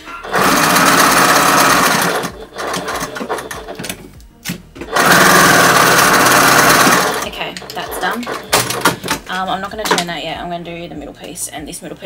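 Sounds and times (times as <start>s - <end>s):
sewing machine stitching: 0.3s - 3.8s, 4.9s - 9.0s.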